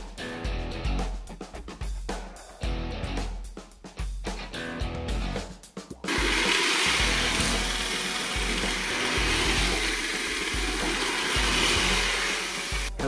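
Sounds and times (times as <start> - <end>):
music with bass beat: 0.0 - 6.4
toy train motor whirring: 6.1 - 13.0.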